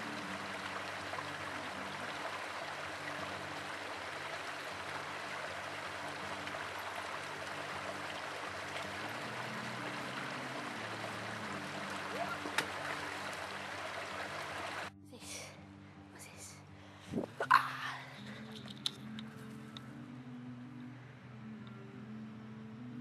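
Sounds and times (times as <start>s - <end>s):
stream running over rocks: 0.0s - 14.9s.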